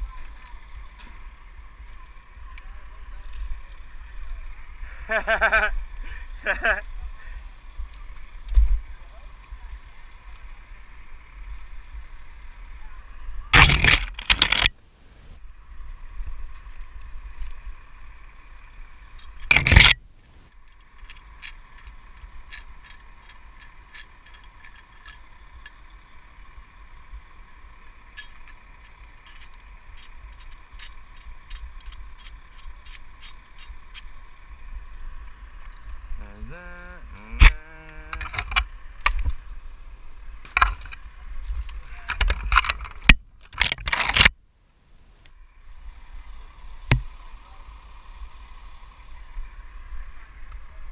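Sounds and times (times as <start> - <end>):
steady background hum: 0.0 - 50.9
rigging hardware clinking: 13.5 - 15.4, 19.0 - 26.2, 27.6 - 34.4, 35.5 - 39.5, 40.3 - 44.4.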